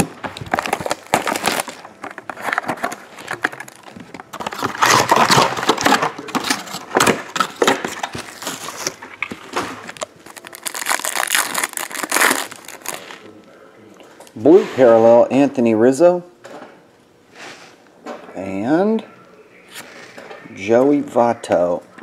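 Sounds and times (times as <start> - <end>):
plastic wrap and foil crinkling: 0.0 - 13.4.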